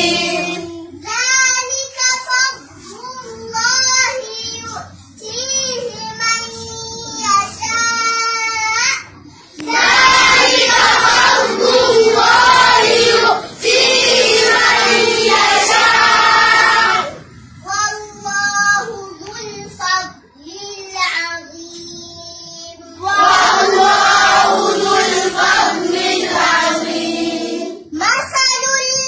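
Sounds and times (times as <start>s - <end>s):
children chanting together: 0.0s - 0.8s, 9.6s - 17.2s, 23.0s - 27.8s.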